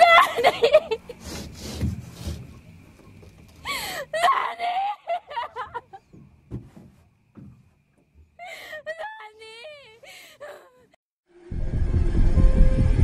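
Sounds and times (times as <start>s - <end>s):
dull thuds: 1.3s - 3.7s, 6.0s - 8.4s.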